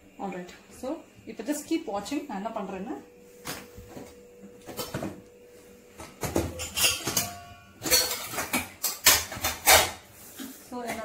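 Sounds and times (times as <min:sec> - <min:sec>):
metal utensils clinking: 0:06.2 - 0:09.9.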